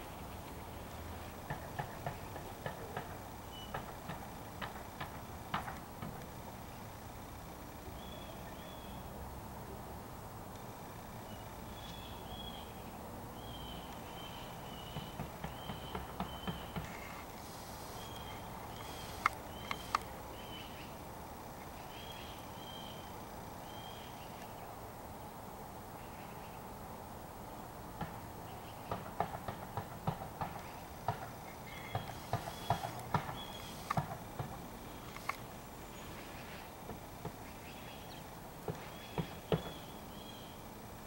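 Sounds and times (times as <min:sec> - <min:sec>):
faint high bird chirps: 0:03.4 - 0:03.8, 0:07.9 - 0:09.1, 0:11.2 - 0:16.8.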